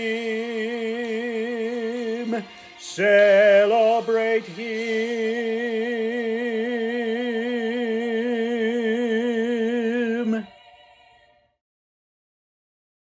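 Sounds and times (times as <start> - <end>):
solo singer with vibrato: 0.0 - 11.0.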